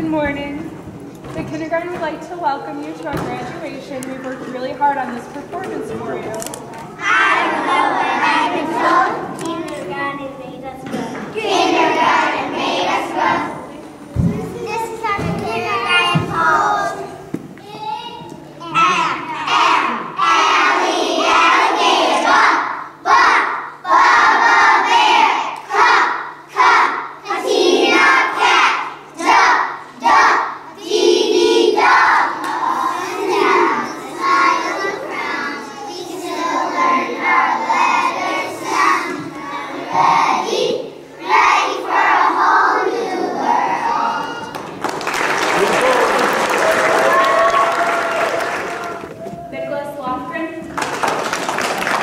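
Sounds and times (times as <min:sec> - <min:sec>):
children singing in unison: 0:11.4 - 0:13.6, 0:19.4 - 0:44.6.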